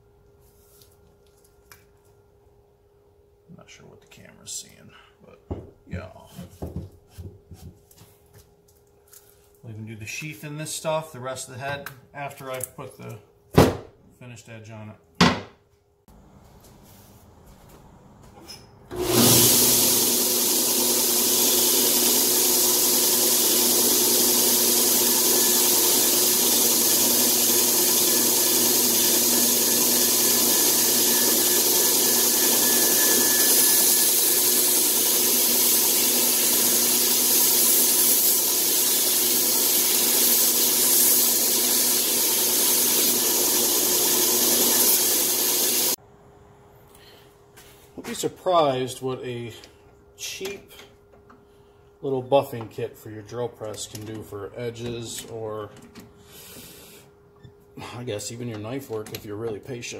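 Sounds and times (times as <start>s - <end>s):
belt grinder grinding steel: 18.9s - 46.0s.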